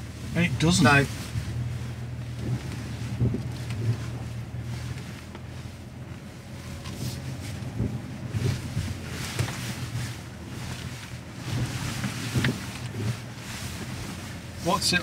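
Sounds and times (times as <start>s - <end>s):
low engine drone: 0.0s - 15.0s.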